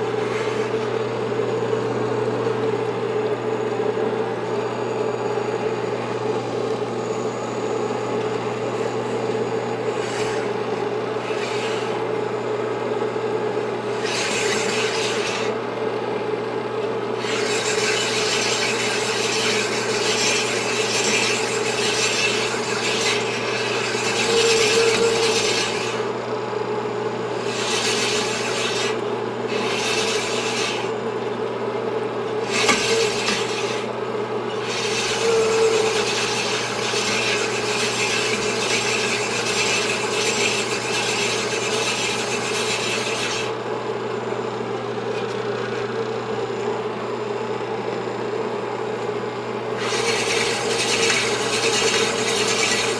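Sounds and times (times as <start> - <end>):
machine motor hum: 0.0 - 52.9
honing stones rasping metal: 9.8 - 12.0, 13.9 - 15.5, 17.2 - 26.1, 27.3 - 30.9, 32.4 - 33.9, 34.5 - 43.6, 49.8 - 52.9.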